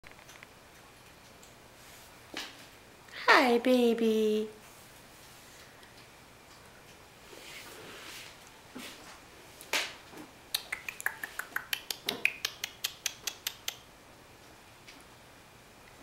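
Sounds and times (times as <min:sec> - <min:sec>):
person making sharp clicks: 0:10.5 - 0:13.9.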